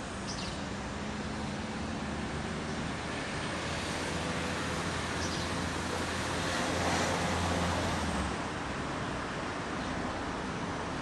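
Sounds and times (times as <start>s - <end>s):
passing vehicle engine drone: 0.0s - 8.6s
outdoor background noise: 0.0s - 11.0s.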